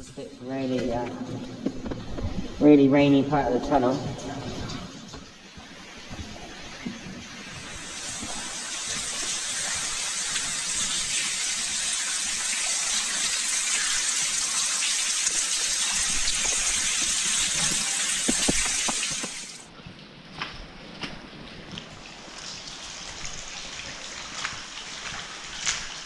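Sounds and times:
water raining down hissing: 4.2 - 19.6, 21.9 - 26.0.

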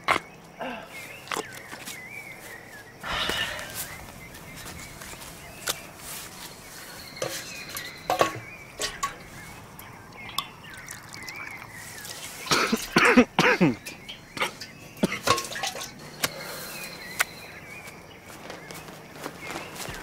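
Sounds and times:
water pouring: 3.5 - 17.1
metal kettle clinking: 7.2 - 9.4, 12.5 - 16.3
person gulping water: 9.8 - 15.9.

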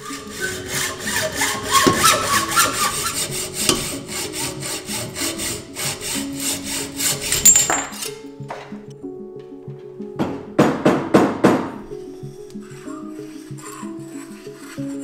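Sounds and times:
hacksaw cutting metal tube: 0.0 - 8.3, 12.7 - 15.0.

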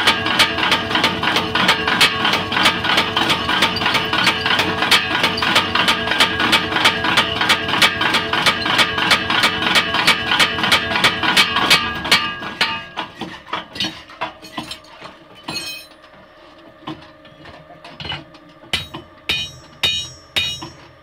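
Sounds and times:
power hammer striking steel: 1.6 - 13.1, 18.7 - 20.9.

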